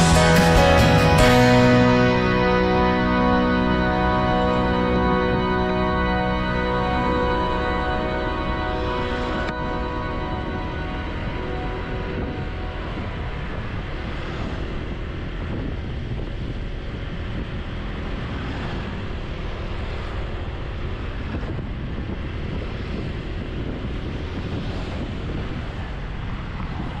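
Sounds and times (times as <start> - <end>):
scooter road noise: 0.0 - 27.0
wind rush over microphone: 9.5 - 27.0.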